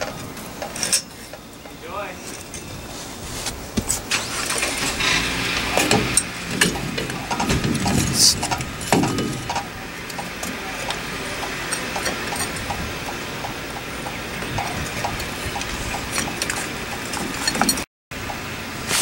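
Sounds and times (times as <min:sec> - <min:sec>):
metal brake parts clinking: 0:00.0 - 0:03.0, 0:05.7 - 0:13.2, 0:14.0 - 0:17.9
steady background noise: 0:00.0 - 0:19.0.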